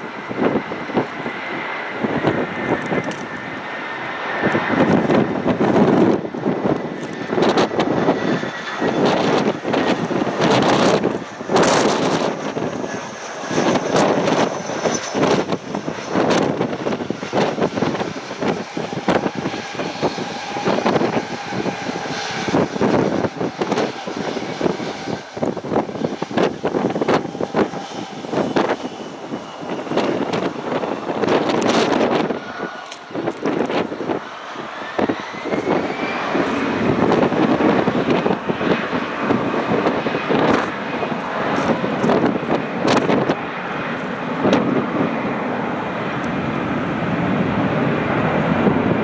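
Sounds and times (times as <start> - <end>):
jet airliner landing: 0.0 - 49.0.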